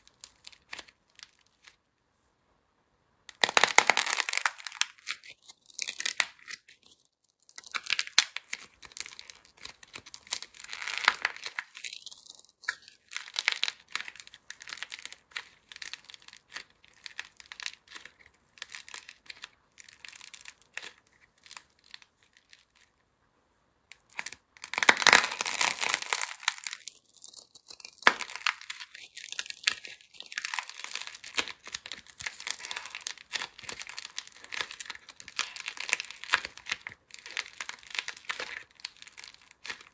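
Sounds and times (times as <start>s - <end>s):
clay cracking and tearing: 0.0s - 1.8s, 3.3s - 23.0s, 23.9s - 39.9s.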